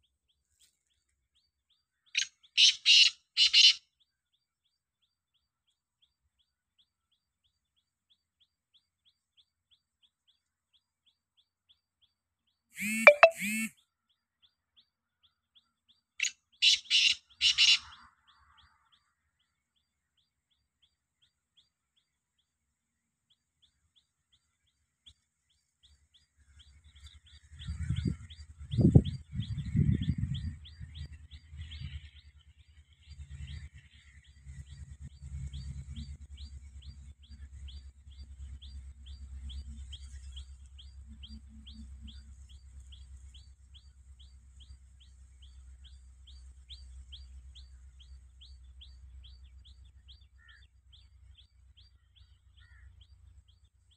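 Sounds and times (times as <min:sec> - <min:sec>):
bird calling: 0:02.2 - 0:03.8, 0:12.8 - 0:13.7, 0:16.2 - 0:18.0
ticking chirps: 0:12.8 - 0:13.7.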